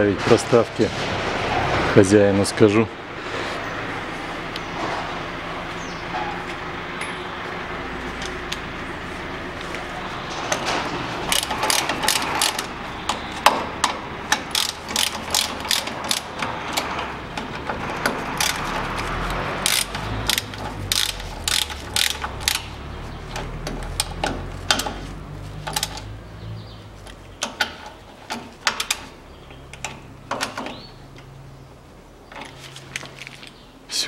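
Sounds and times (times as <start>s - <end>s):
ratchet wrench clicking: 11.3s - 12.7s, 14.3s - 16.4s, 18.4s - 18.8s, 19.6s - 22.7s.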